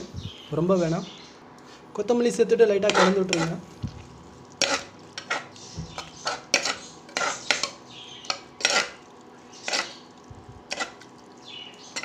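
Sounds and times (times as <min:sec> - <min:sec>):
metal ladle scraping a pot: 0:02.8 - 0:03.6, 0:04.6 - 0:09.0, 0:09.6 - 0:10.0, 0:10.7 - 0:11.1.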